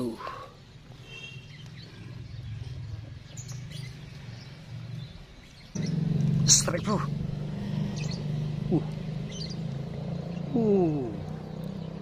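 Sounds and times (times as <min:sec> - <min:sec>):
faint bird chirps: 0:00.0 - 0:07.0, 0:07.7 - 0:12.0.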